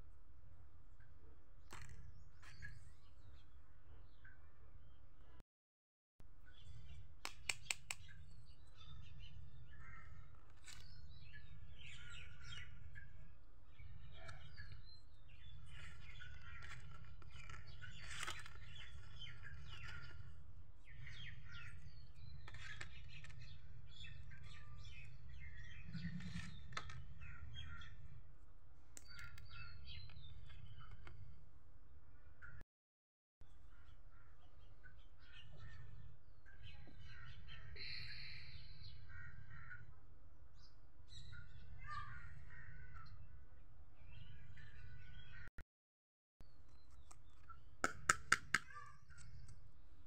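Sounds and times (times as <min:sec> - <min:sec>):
birds chirping: 0:01.6 - 0:05.1, 0:06.4 - 0:28.2, 0:29.0 - 0:31.4, 0:33.6 - 0:40.0.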